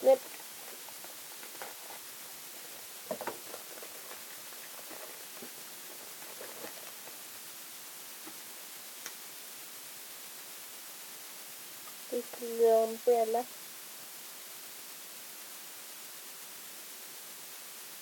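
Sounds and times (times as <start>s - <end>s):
steady background hiss: 0.0s - 18.0s
rustling and light clicks: 0.1s - 7.3s.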